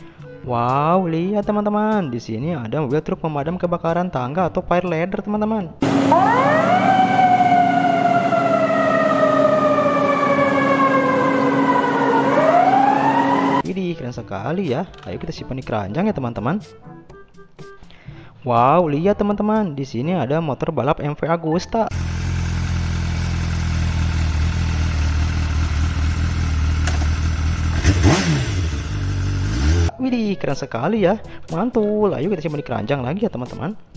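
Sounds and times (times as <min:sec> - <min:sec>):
steady low drone: 0:05.8 - 0:13.6
fire truck siren wailing: 0:05.8 - 0:13.7
motorcycle engine idling: 0:21.9 - 0:28.0, 0:28.6 - 0:29.5.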